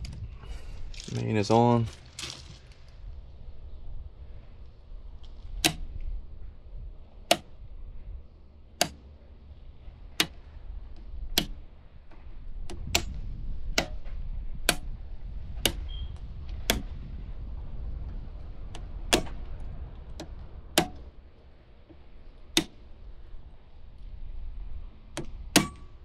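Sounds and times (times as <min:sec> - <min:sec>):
circuit breaker switches snapping: 0:05.6 - 0:05.9, 0:07.2 - 0:07.5, 0:08.7 - 0:09.1, 0:10.1 - 0:11.6, 0:12.7 - 0:14.9, 0:15.6 - 0:17.0, 0:18.7 - 0:21.1, 0:22.5 - 0:22.8.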